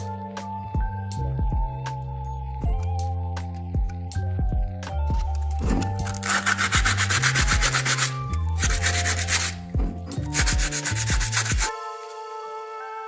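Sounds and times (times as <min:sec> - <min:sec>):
background music: 0:00.0 - 0:13.0
sandpaper scratching metal: 0:06.0 - 0:12.2.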